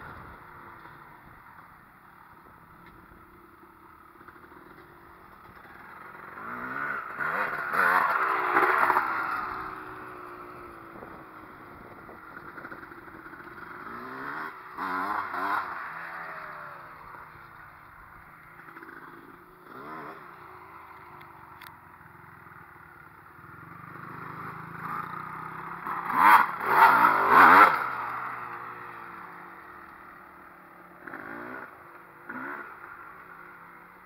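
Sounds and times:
dirt bike engine revving: 0:04.2 - 0:21.2, 0:23.3 - 0:34.0.

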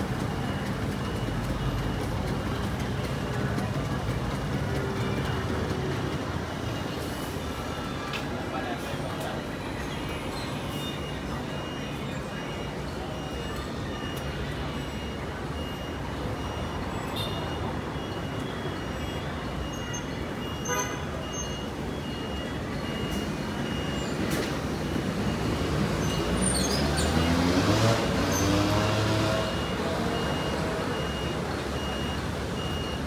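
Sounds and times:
bus engine accelerating: 0:00.0 - 0:33.0
diesel bus engines running: 0:00.0 - 0:33.0
faint high beep: 0:10.0 - 0:24.1, 0:28.7 - 0:33.0.

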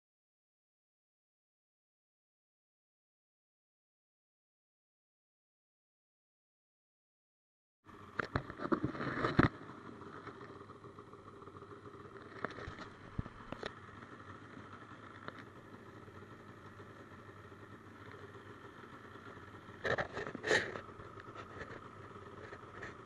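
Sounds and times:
snowmobile engine running: 0:07.9 - 0:23.0.

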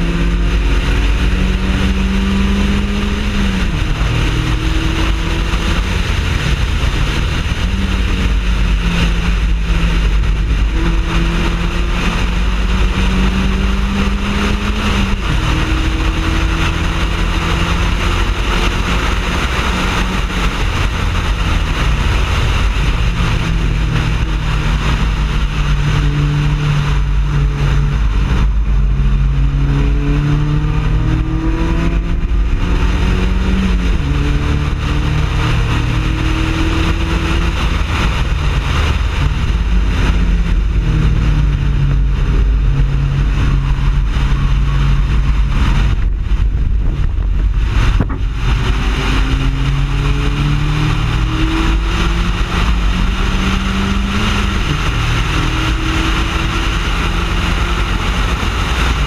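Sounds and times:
race car engine revving: 0:00.0 - 0:59.0
road and wind noise: 0:00.0 - 0:59.0.

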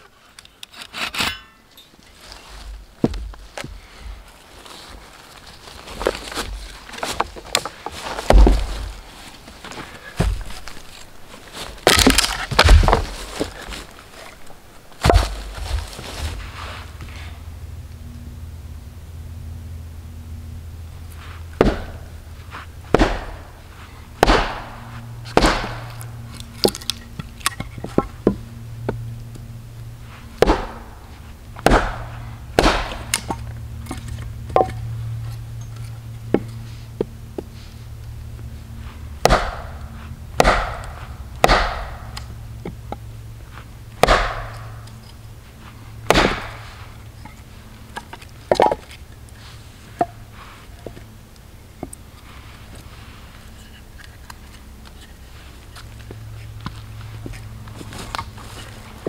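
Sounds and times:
hatchet chopping wood: 0:08.3 - 0:08.9, 0:11.8 - 0:13.5, 0:21.6 - 0:22.1, 0:22.9 - 0:23.5, 0:24.2 - 0:28.3, 0:30.4 - 0:30.9, 0:31.6 - 0:34.8, 0:39.2 - 0:42.8, 0:44.0 - 0:44.8, 0:46.1 - 0:46.7.

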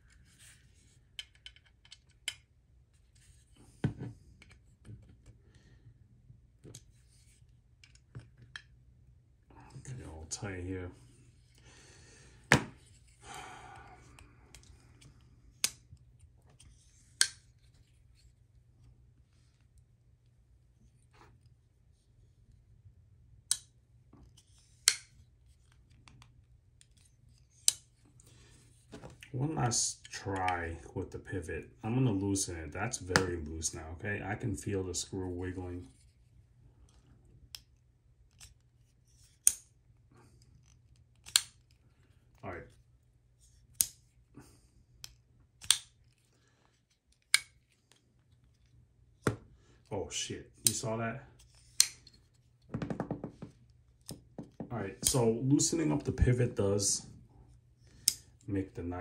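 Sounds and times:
folding knife clicking: 0:45.6 - 0:45.9.

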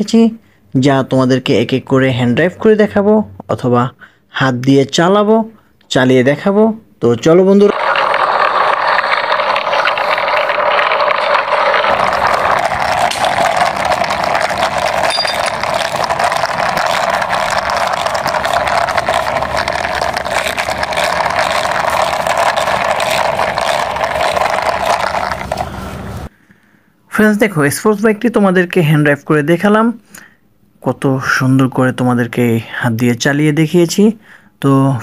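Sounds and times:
toy bike wheels rattling on concrete: 0:07.7 - 0:26.3.

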